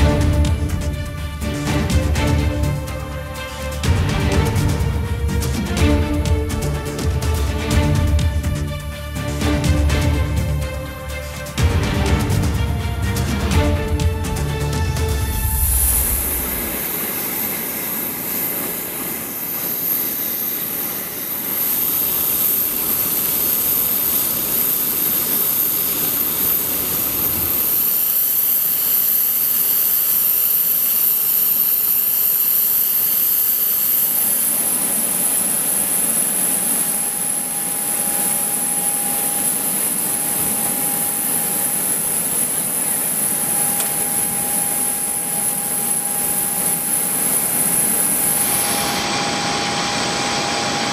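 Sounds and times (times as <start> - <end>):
steady mid-pitched tone: 0.0 - 23.4
jet turbine whine: 0.0 - 50.9.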